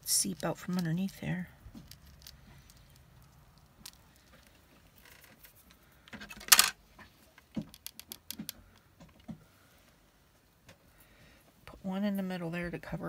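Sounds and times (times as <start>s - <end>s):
small craft items rattling: 0.0s - 6.7s.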